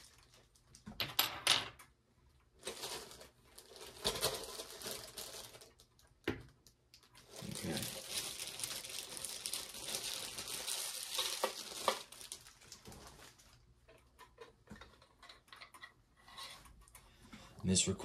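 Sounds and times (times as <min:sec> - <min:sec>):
packaging crinkling: 0:00.0 - 0:00.8, 0:02.6 - 0:13.7.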